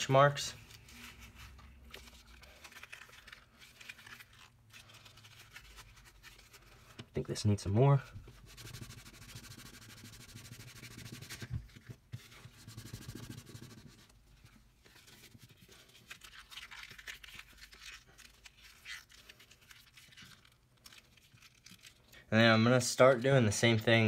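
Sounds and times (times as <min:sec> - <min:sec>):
hands crumpling leather: 0:00.6 - 0:06.7.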